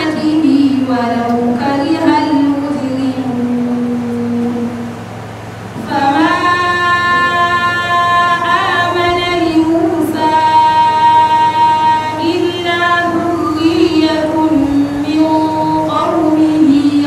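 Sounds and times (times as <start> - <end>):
girl chanting recitation: 5.8 - 17.0.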